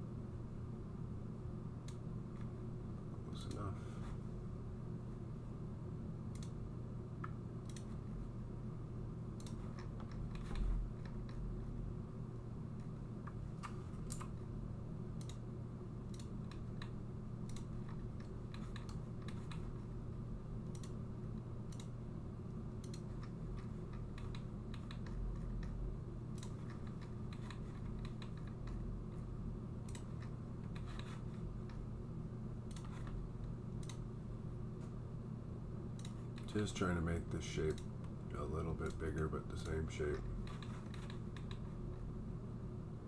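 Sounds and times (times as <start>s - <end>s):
low hum: 0.0s - 43.0s
mouse and keyboard clicks: 9.4s - 11.4s, 16.1s - 19.9s, 22.8s - 28.8s, 32.7s - 33.2s, 40.4s - 41.8s.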